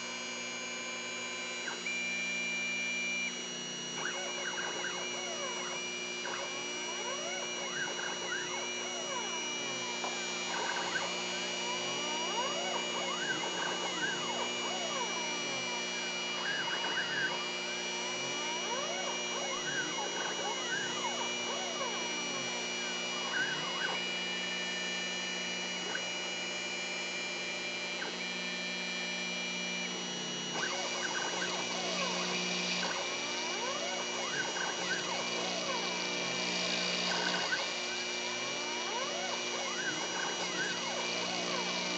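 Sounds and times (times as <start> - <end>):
steady high-pitched whine: 0.0 - 41.9
stepper motors whining in sweeps: 30.6 - 41.9.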